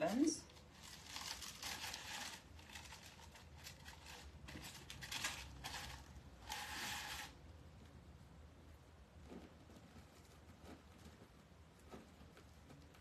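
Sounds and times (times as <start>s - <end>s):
plastic mesh rustling and crinkling: 0.0s - 7.4s.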